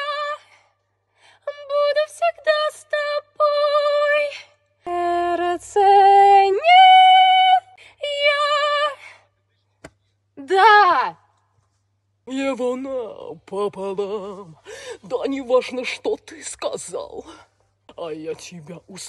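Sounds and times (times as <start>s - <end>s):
woman singing wordless syllables: 10.4s - 11.3s.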